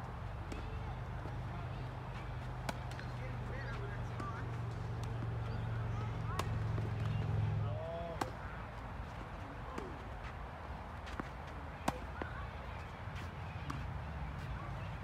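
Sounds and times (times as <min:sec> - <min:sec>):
tennis ball bouncing on court: 0:02.2 - 0:08.6, 0:11.0 - 0:14.6
tennis ball struck by racquets: 0:02.6 - 0:03.5, 0:04.1 - 0:08.4, 0:11.0 - 0:12.4.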